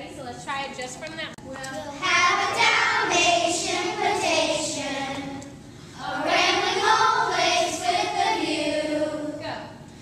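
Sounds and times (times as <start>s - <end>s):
children singing: 2.0s - 9.4s.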